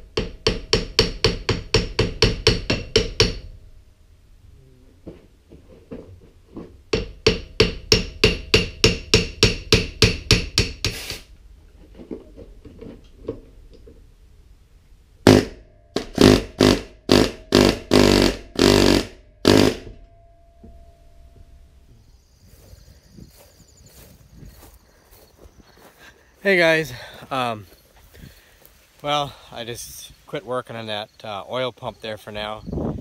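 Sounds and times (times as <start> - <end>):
hammer striking metal pump: 0.2 - 3.5, 6.9 - 11.0.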